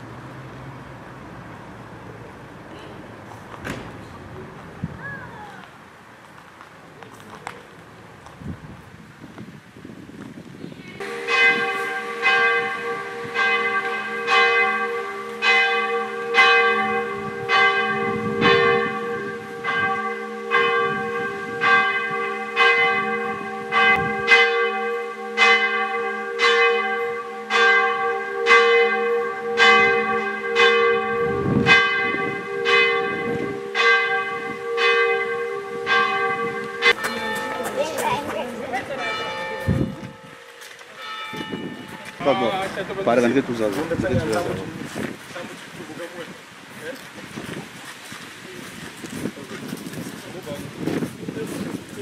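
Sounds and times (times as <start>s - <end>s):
church bell ringing: 11.0s - 44.6s.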